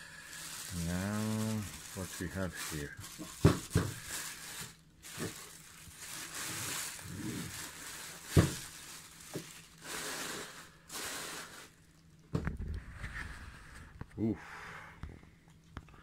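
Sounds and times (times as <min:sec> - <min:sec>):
plastic bag crinkling: 0:00.0 - 0:12.2.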